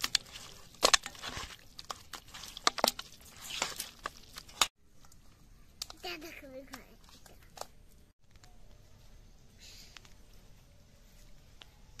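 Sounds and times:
squishing of raw meat: 0:00.0 - 0:06.0.

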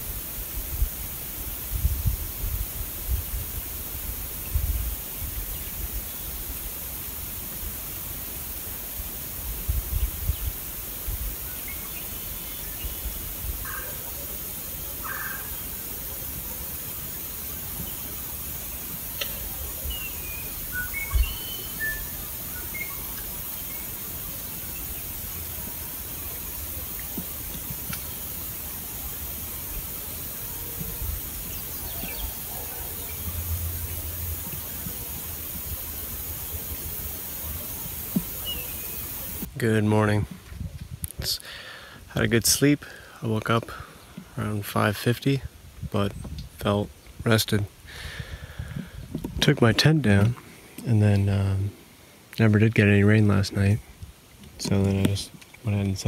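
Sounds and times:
steady hiss: 0:00.0 - 0:56.0
faint bird chirps and whistles: 0:19.2 - 0:24.0, 0:38.3 - 0:39.3.

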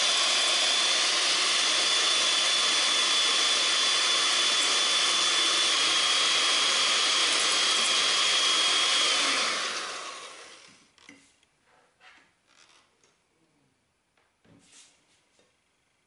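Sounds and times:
electric hand mixer whirring: 0:00.0 - 0:10.9.

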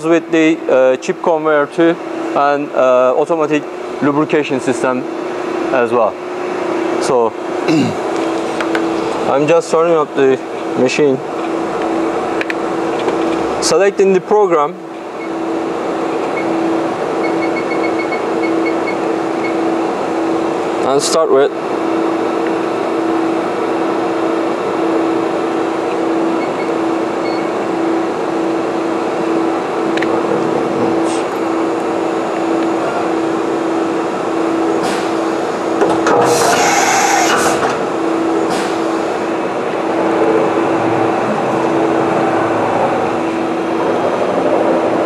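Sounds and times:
drilling machine pulsing hum: 0:00.0 - 0:45.0
loud burst of hiss: 0:36.2 - 0:37.7.

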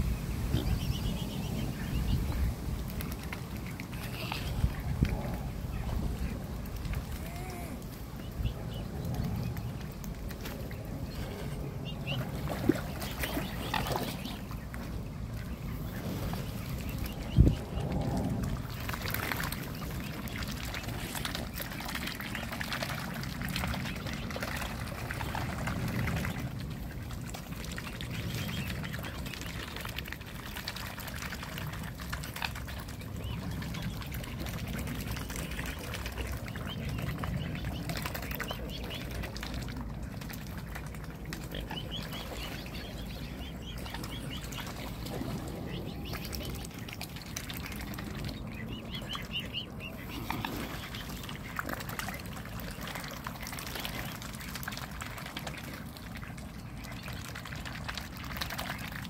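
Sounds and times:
swans dabbling and splashing: 0:00.0 - 0:59.0
water sloshing: 0:00.0 - 0:59.0.

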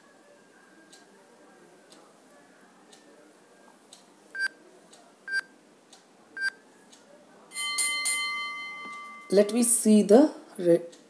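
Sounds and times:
multi-tone chime: 0:07.5 - 0:09.7
timer beeps: 0:07.6 - 0:09.4.

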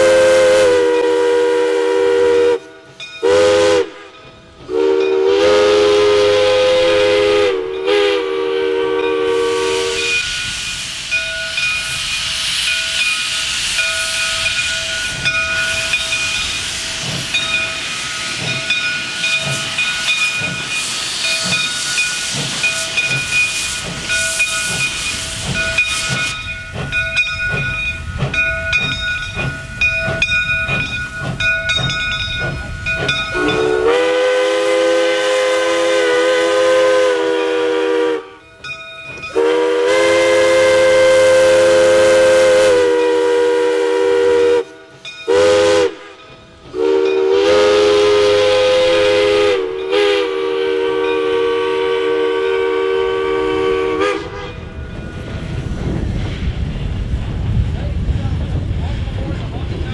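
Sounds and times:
steam locomotive whistle: 0:00.0 - 0:16.8, 0:33.0 - 0:38.5, 0:39.2 - 0:54.8
steam hissing: 0:00.0 - 0:59.9.

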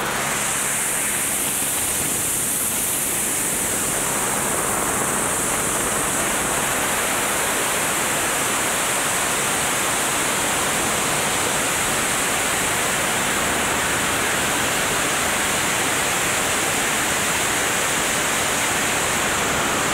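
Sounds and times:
helicopter in flight: 0:00.0 - 0:19.9.

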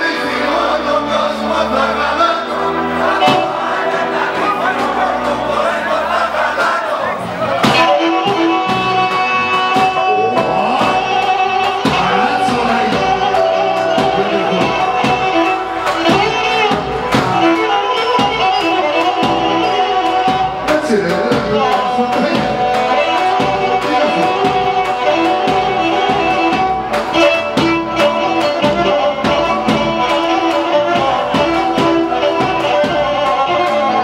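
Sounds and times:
folk band accompaniment: 0:00.0 - 0:34.0
bowed fiddle dance tune: 0:01.5 - 0:34.0.

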